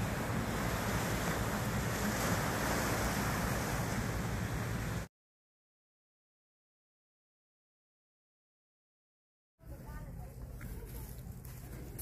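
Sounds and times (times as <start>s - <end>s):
sea surf rushing: 0.0s - 5.1s.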